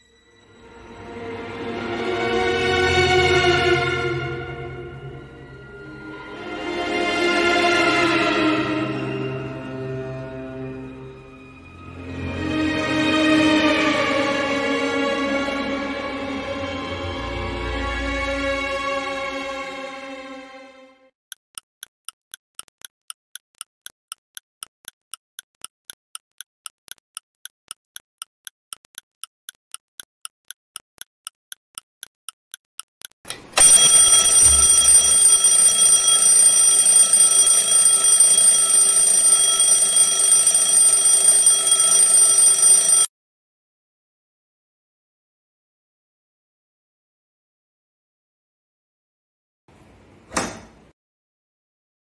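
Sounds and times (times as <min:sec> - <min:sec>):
clock ticking: 0:21.3 - 0:43.1
alarm clock ringing: 0:33.6 - 0:43.1.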